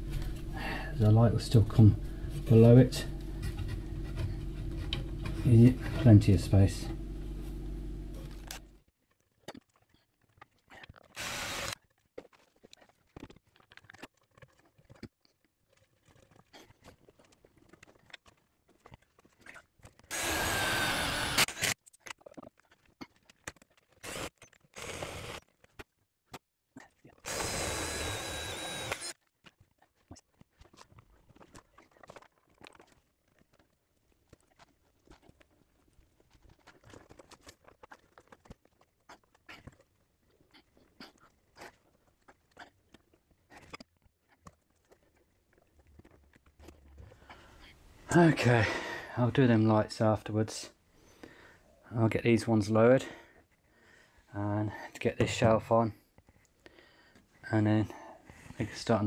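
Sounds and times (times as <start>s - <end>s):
power drill whining: 11.2s - 11.8s, 20.1s - 21.8s, 24.0s - 25.4s, 27.2s - 29.2s.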